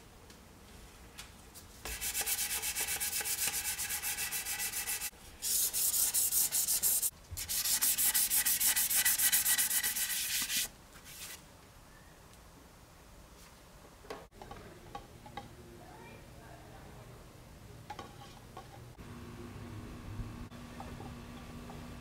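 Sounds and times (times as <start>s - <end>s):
sandpaper scratching wood: 1.8s - 11.4s.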